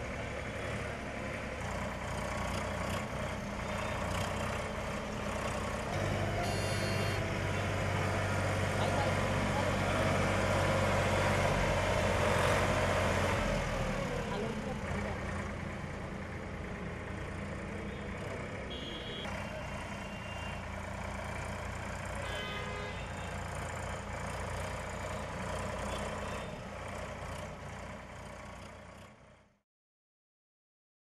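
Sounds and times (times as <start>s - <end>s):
tractor diesel engine running: 0.0s - 29.6s
short high-pitched beeps: 6.4s - 7.2s.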